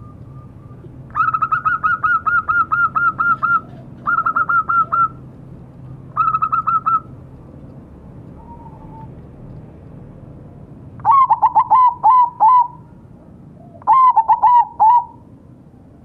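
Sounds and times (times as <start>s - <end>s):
dove cooing: 0.5s - 5.2s, 6.1s - 7.1s, 8.4s - 9.1s, 11.0s - 15.2s.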